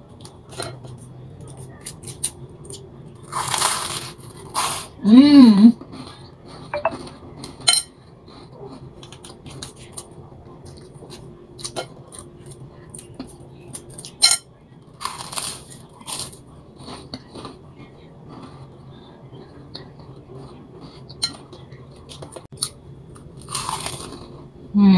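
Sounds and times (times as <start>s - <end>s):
chewing: 5.8s - 14.2s, 14.9s - 24.5s
biting toast: 22.1s - 24.3s.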